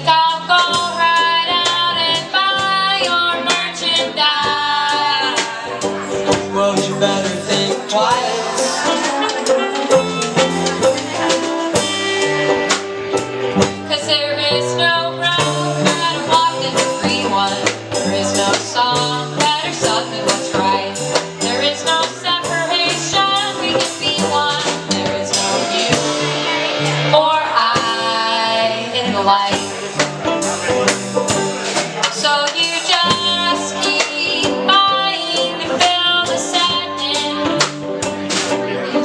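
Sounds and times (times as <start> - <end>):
drum kit beat: 0.0 - 39.0
saxophone melody: 1.2 - 17.1.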